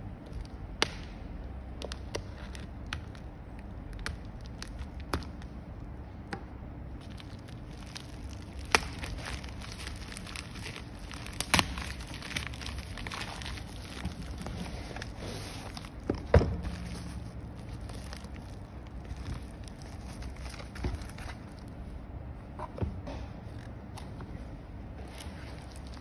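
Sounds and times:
plastic mailer bag crinkling: 7.0 - 21.7, 25.0 - 26.0.

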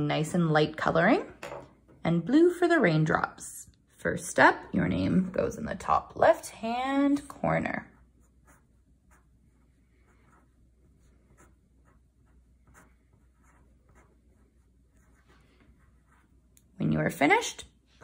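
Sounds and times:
pencil scratching on paper: 7.6 - 16.7.

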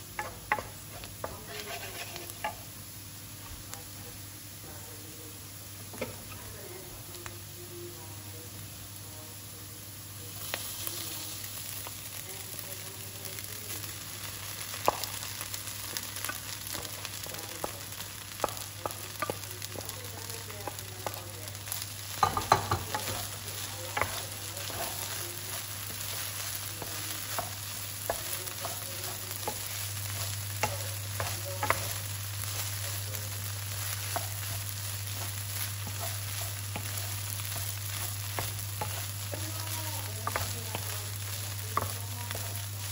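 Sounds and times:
onions sizzling in oil: 0.0 - 42.9
rice stir-fried in a pan: 0.0 - 42.9
wooden spoon scraping a pan: 0.2 - 2.7, 14.7 - 42.9.

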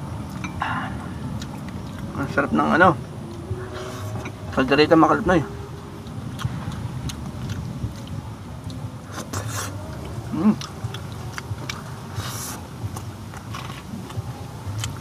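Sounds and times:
chewing and lip smacks: 5.7 - 15.0.

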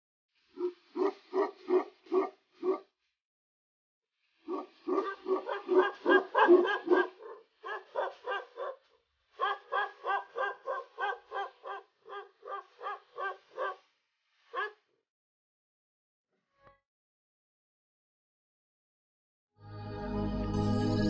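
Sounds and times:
dog barking deeply: 0.6 - 2.9, 4.5 - 8.8, 9.4 - 13.8, 14.5 - 14.8.

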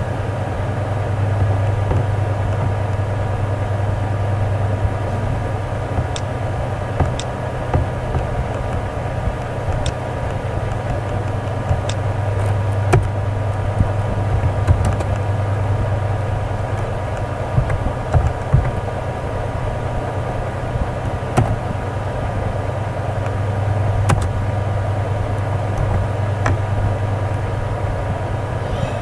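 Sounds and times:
low electrical hum: 0.0 - 29.0.

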